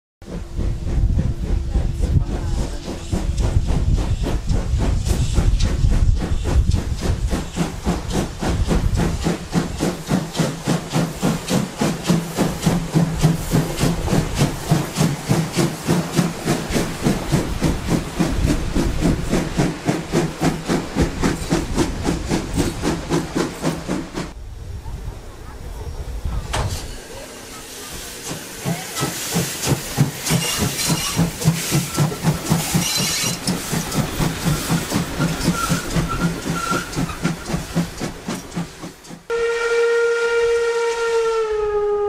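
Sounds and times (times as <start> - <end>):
steam locomotive passing: 0.2 - 42.0
steam hissing: 0.3 - 24.4, 26.3 - 39.3
heavy low rumble: 0.4 - 7.4
locomotive exhaust beats: 28.0 - 42.0.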